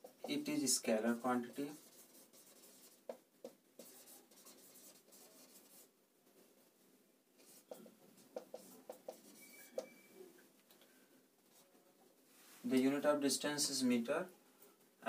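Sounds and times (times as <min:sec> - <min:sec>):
marker pen writing on whiteboard: 0:00.0 - 0:05.9, 0:07.4 - 0:10.1.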